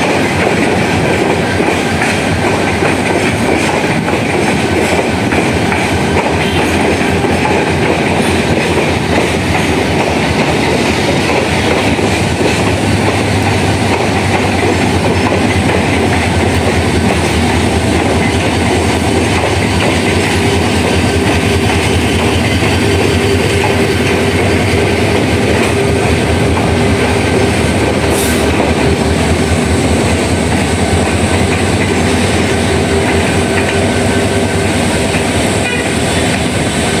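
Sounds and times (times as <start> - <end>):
train wheels clattering on rails: 0.0 - 37.0.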